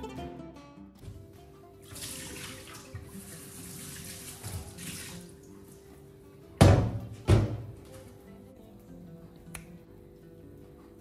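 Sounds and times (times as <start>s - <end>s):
tap water running into sink: 1.8s - 5.8s.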